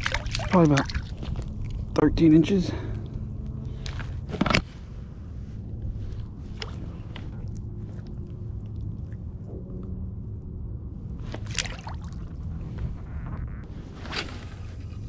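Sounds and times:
fish splashing into water: 0.0 - 1.8, 11.4 - 12.2
water sloshing and lapping: 0.0 - 2.1, 5.8 - 9.6, 11.2 - 13.0
low rumble: 0.0 - 15.0.

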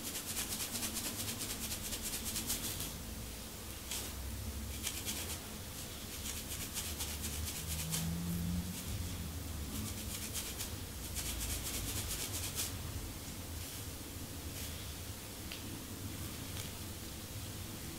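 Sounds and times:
scratching scalp through hair: 0.0 - 3.0, 3.8 - 12.8.

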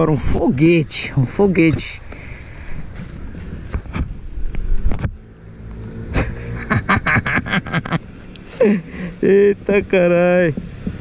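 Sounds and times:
scooter engine accelerating: 5.2 - 8.2.

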